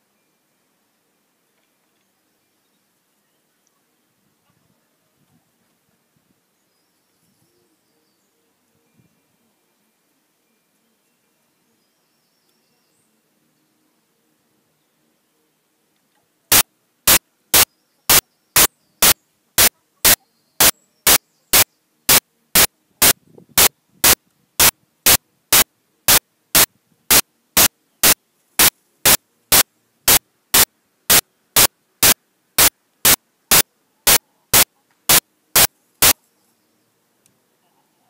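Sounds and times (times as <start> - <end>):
short bursts of static: 16.5 - 36.2.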